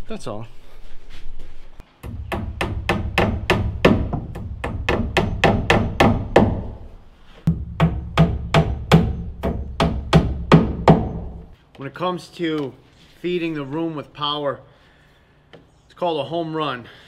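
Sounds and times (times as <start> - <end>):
hammer striking nails into wood: 2.0 - 6.9, 7.5 - 11.5.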